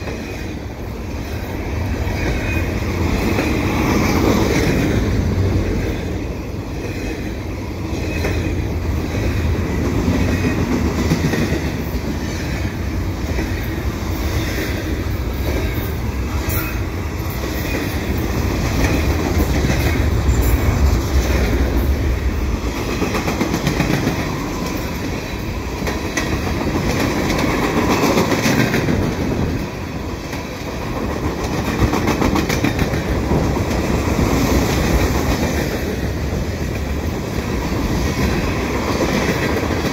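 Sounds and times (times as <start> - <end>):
steel wheels rumbling on rail: 0.0 - 39.9
wheels clicking over rail joints: 22.7 - 39.9.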